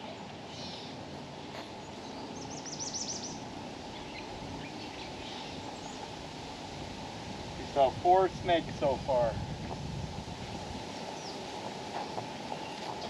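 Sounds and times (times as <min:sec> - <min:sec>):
songbird chirping: 0:00.0 - 0:06.2, 0:10.8 - 0:13.0
outdoor background noise: 0:00.0 - 0:13.0.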